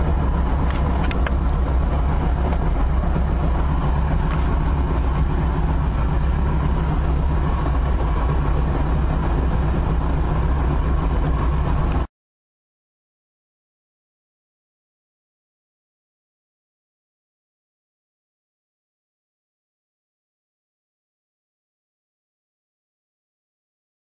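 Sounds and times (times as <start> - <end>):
propeller aircraft engine in flight: 0.0 - 12.1.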